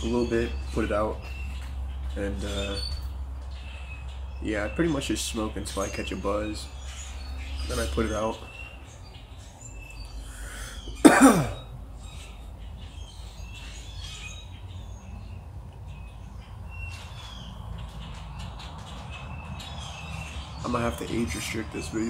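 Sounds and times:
small birds chirping: 0:00.0 - 0:22.0
man coughing: 0:11.0 - 0:11.7.

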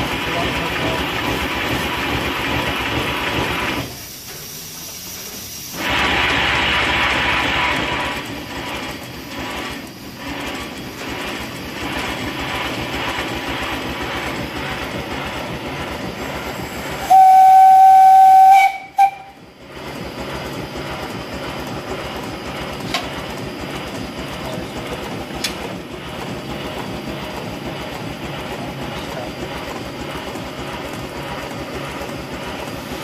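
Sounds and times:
steam locomotive chuffing and hissing: 0:00.0 - 0:33.0
steam whistle: 0:17.0 - 0:19.4.

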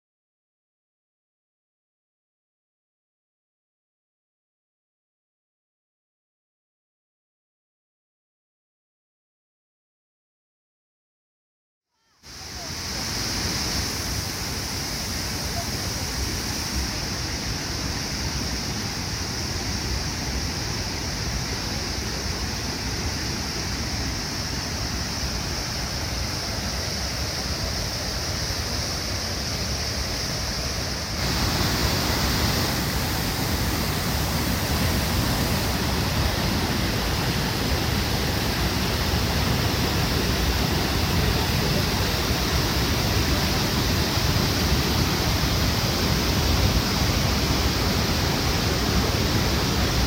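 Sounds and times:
waterfall rushing: 0:12.2 - 0:50.0.

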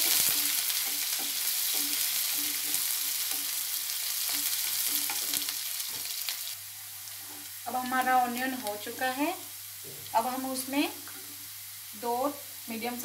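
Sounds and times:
spatula scraping pan: 0:00.0 - 0:06.1
onions sizzling in oil: 0:00.0 - 0:13.0.

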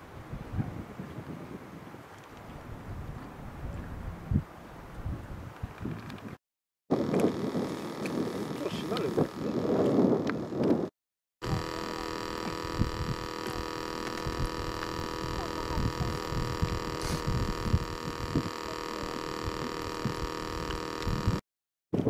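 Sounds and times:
electric air pump humming: 0:06.9 - 0:21.4.

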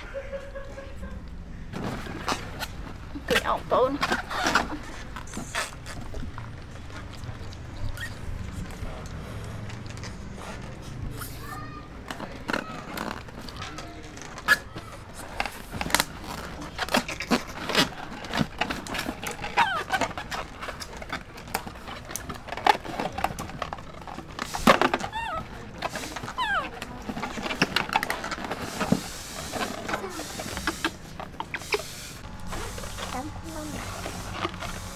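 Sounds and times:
short squeaky glides: 0:07.8 - 0:08.6, 0:25.0 - 0:26.8.

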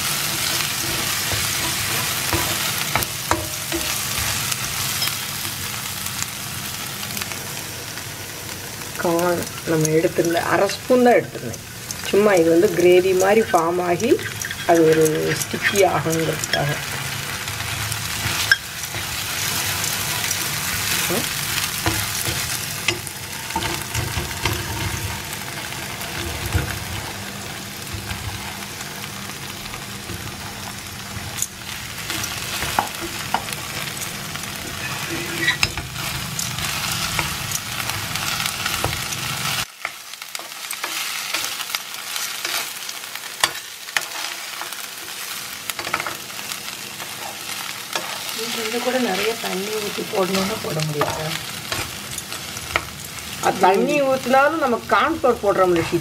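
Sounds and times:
wooden spatula scraping pan: 0:00.0 - 0:05.1, 0:32.0 - 0:39.1
food sizzling in a frying pan: 0:00.0 - 0:56.0.

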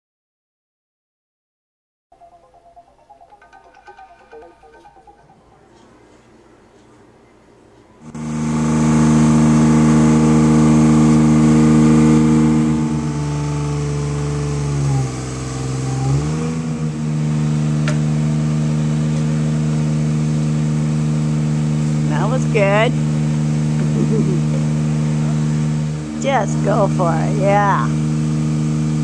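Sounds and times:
power equipment engine running: 0:08.0 - 0:29.0.

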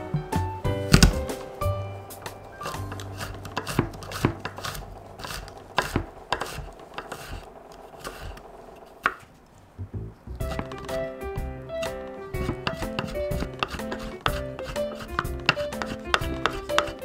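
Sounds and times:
knife chopping: 0:00.9 - 0:01.5, 0:02.2 - 0:09.3, 0:10.4 - 0:11.0, 0:11.8 - 0:17.0
knife tapping on wooden board: 0:12.4 - 0:17.0.

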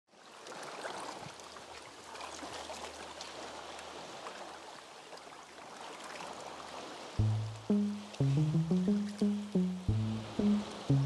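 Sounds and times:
small water splashes and drips: 0:00.3 - 0:06.9.

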